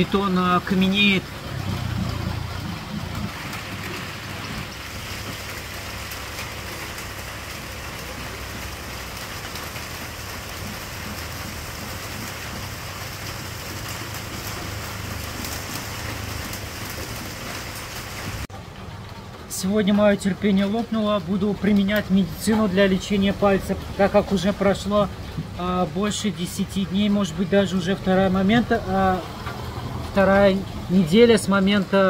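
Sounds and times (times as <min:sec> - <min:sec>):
steady rain falling: 0:00.0 - 0:32.0
low engine hum: 0:01.2 - 0:03.9.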